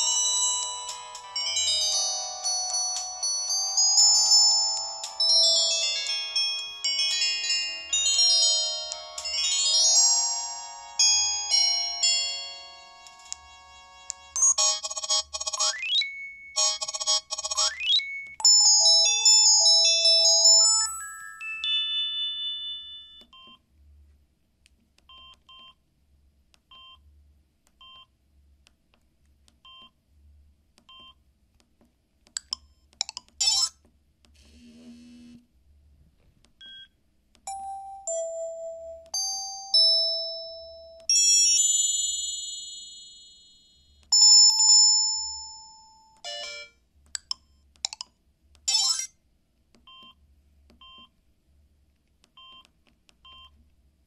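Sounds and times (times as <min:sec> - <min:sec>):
phone alert tones: 0:12.9 - 0:23.6, 0:33.0 - 0:33.8
bright chimes: 0:17.6 - 0:23.2
phone key beeps: 0:23.1 - 0:23.6, 0:25.1 - 0:25.8, 0:49.8 - 0:51.1, 0:52.3 - 0:53.6.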